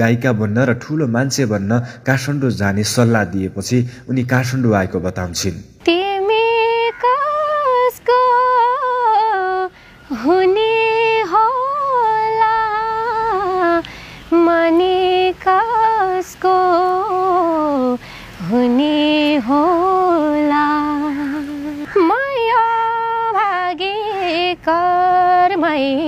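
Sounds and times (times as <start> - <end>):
woman singing unaccompanied: 5.8 - 26.0.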